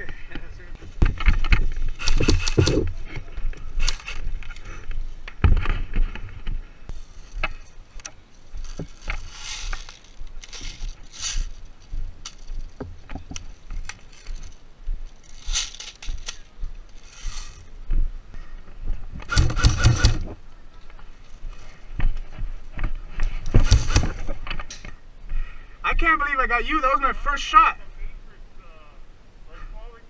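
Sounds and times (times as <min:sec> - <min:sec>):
sharp clicks and knocks: 0:01.0 - 0:03.0, 0:23.4 - 0:25.0
clothing and equipment rustling: 0:05.6 - 0:18.0.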